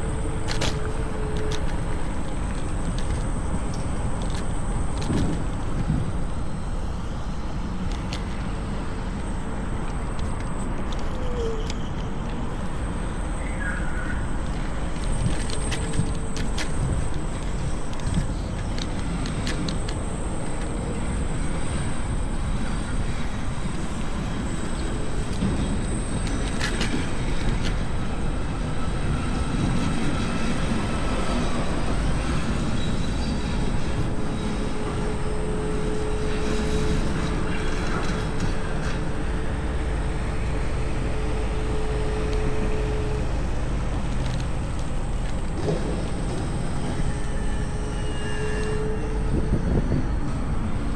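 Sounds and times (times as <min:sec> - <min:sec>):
wind rush over microphone: 0:49.0 - 0:50.9.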